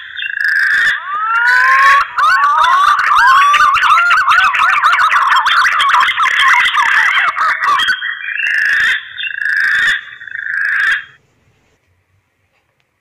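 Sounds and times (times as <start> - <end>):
warbling whistle notes: 0.8 - 8.3.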